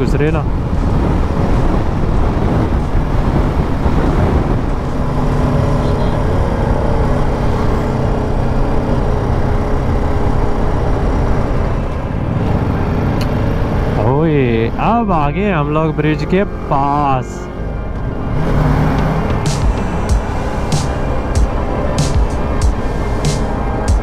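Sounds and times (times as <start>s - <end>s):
wind noise: 0.0s - 15.3s
motorcycle engine running: 18.9s - 24.0s.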